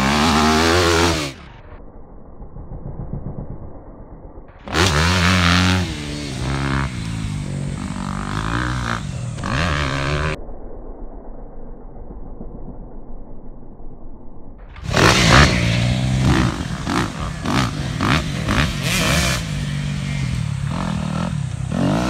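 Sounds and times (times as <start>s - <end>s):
dirt bike engine revving: 0.0s - 1.5s, 4.6s - 10.4s, 14.8s - 22.0s.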